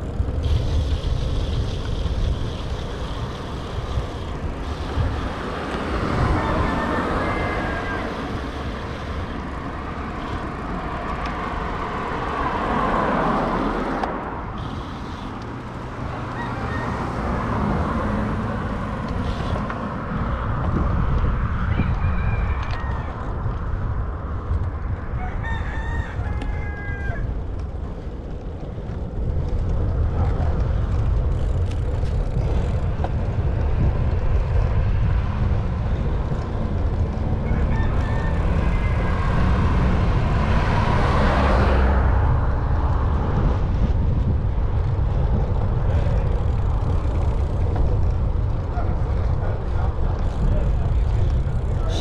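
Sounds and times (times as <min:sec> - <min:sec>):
whoosh of passing vehicle: 0:00.0 - 0:28.4, 0:29.0 - 0:52.0
wind and road noise: 0:00.0 - 0:52.0
rooster crowing: 0:06.4 - 0:08.2, 0:16.3 - 0:17.2, 0:25.1 - 0:27.3, 0:37.4 - 0:39.2.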